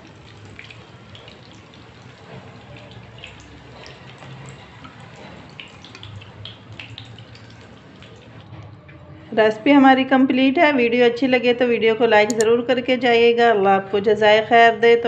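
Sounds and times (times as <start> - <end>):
patties sizzling in oil: 0.0 - 8.6.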